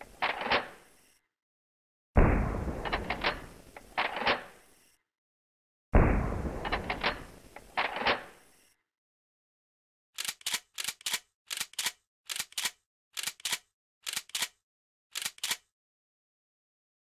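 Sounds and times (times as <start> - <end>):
sharp clicks in pairs: 10.2 - 15.7.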